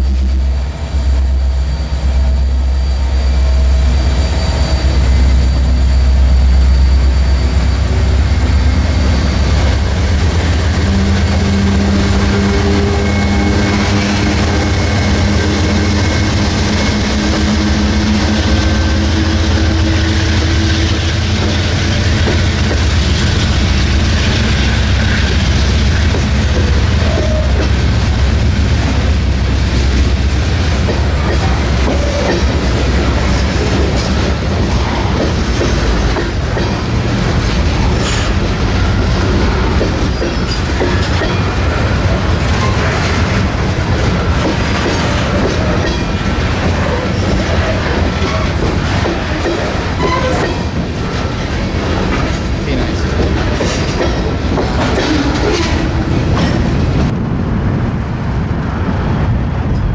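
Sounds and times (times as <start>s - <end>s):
diesel locomotive engine drone: 0.0s - 59.9s
train wheels clattering on rail joints: 9.5s - 57.2s.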